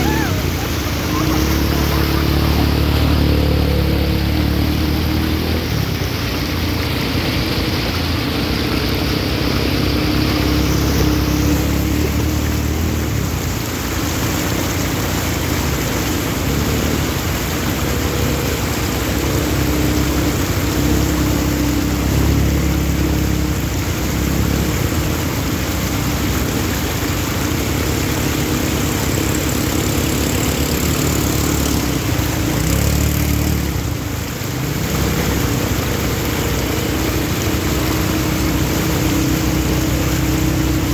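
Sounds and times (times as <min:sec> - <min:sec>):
quad bike engines running: 0:00.0 - 0:40.9
water splashing under wheels: 0:00.0 - 0:40.9.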